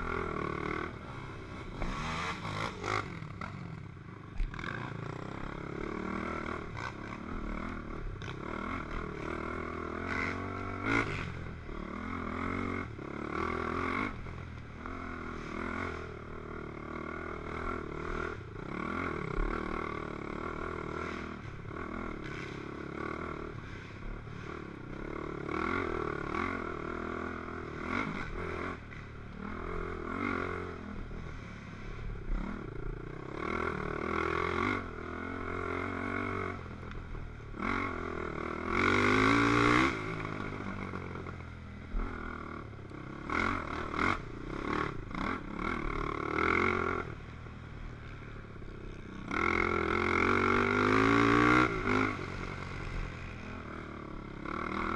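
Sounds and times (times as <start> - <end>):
quad engine revving: 0.0 - 3.6, 37.6 - 41.0, 43.2 - 47.2, 49.2 - 54.9.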